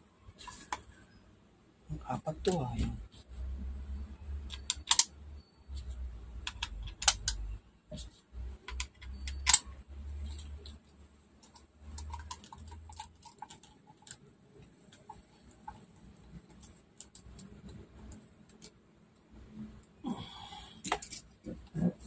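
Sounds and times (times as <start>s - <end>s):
hard plastic parts clicking: 4.4s - 5.1s, 6.4s - 7.5s.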